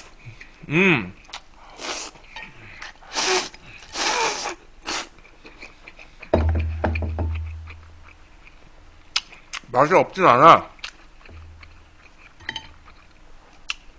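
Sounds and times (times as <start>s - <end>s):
person slurping noodles: 1.8s - 2.2s, 3.1s - 5.1s.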